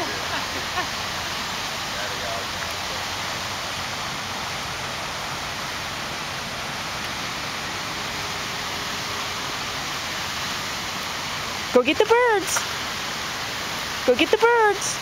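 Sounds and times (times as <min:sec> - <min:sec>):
fountain water splashing: 0:00.0 - 0:15.0.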